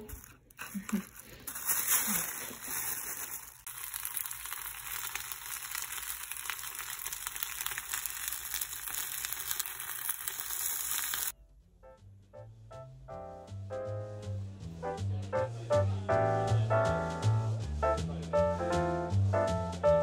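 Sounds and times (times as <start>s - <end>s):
leaves sizzling in a pan: 0.8s - 11.3s
quiet jazzy background music: 11.3s - 20.0s.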